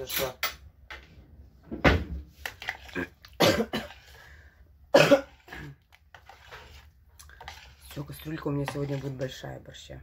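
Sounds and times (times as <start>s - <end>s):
woman coughing: 3.4s - 4.1s, 4.9s - 5.8s.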